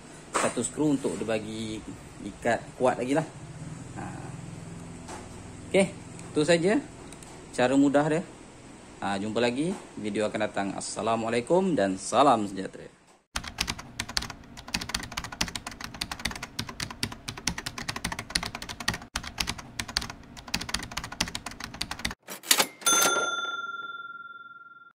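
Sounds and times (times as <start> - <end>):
keyboard typing clicks: 13.4 - 22.7
bell-like ding: 22.5 - 24.9.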